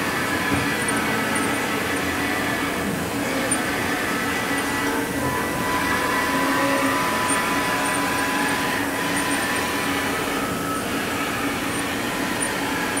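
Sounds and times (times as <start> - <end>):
machine mechanical hum: 0.0 - 13.0
thin whine: 0.0 - 13.0.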